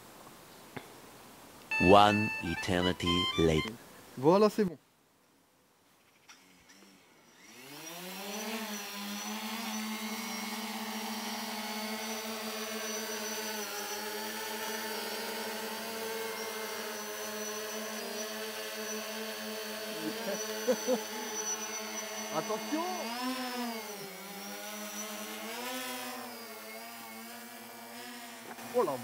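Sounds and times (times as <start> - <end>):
drone propellers whining and buzzing: 6.7 - 29.0.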